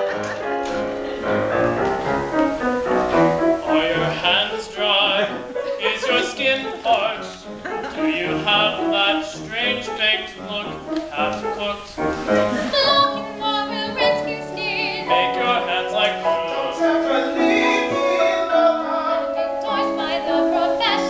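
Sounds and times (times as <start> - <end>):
piano accompaniment: 0.0 - 21.0
opera singing with vibrato: 12.7 - 21.0.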